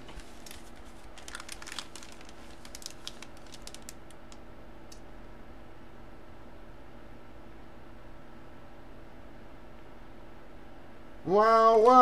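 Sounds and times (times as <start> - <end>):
plastic wrapping crinkling: 0.0 - 4.4
faint steady hum: 0.0 - 12.0.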